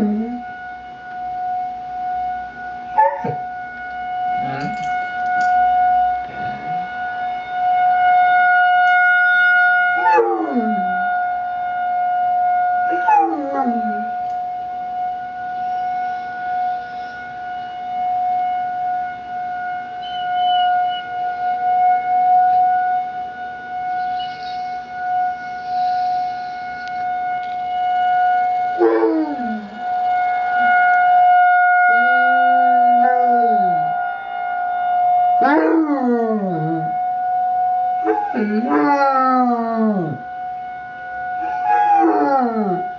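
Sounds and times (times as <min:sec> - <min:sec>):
siren steady tone: 0:00.0 - 0:42.9
puppy howling: 0:12.9 - 0:14.1, 0:28.8 - 0:29.7, 0:32.2 - 0:33.9, 0:38.0 - 0:40.2, 0:41.4 - 0:42.8.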